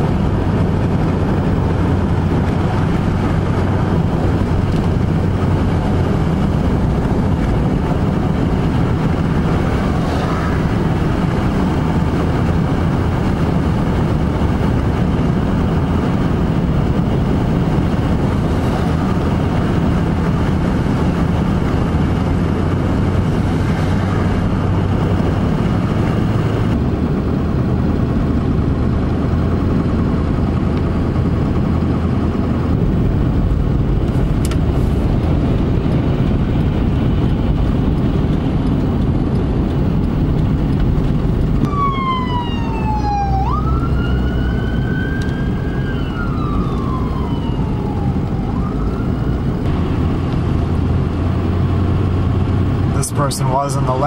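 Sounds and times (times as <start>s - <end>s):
road and engine noise in cabin: 0.0s - 54.0s
siren wailing: 41.6s - 49.7s.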